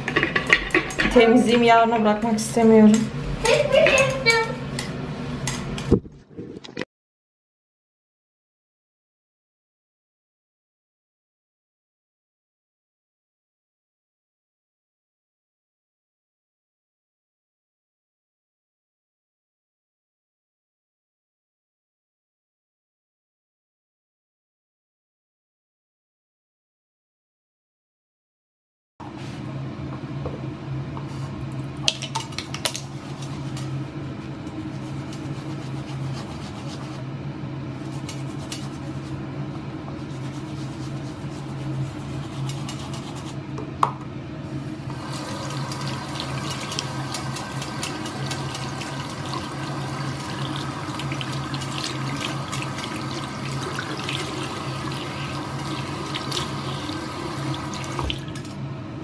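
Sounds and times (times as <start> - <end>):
brushes scrubbed on pad: 32.9 - 37.0, 37.8 - 39.2, 39.9 - 43.4
tap water running into sink: 44.9 - 58.5.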